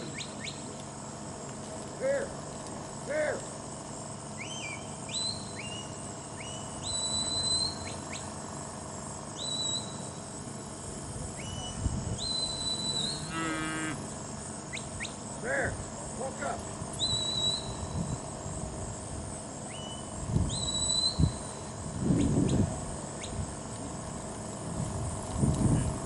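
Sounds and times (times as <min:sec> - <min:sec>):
short high herding whistles: 0:04.3 - 0:08.4, 0:09.4 - 0:10.2, 0:11.3 - 0:14.0, 0:17.0 - 0:18.2, 0:19.7 - 0:21.6.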